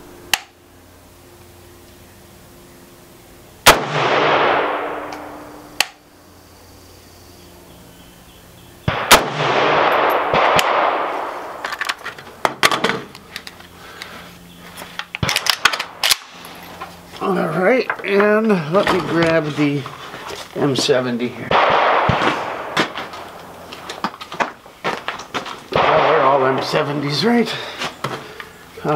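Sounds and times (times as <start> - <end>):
rifle shots with echo: 3.6 - 5.9, 8.9 - 11.6, 21.5 - 23.3, 25.7 - 27.0.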